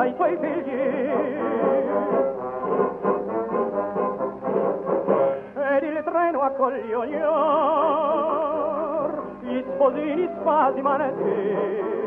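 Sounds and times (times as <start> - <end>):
person singing: 0.0 - 2.2, 5.2 - 12.0
brass melodic phrase: 1.4 - 5.5.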